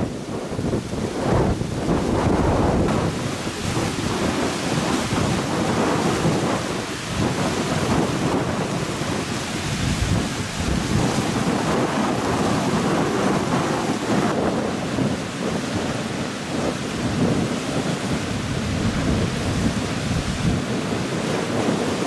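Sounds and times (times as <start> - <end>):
rain: 0.0 - 22.0
sea waves breaking on shore: 0.0 - 22.0
strong wind buffeting microphone: 0.0 - 22.0.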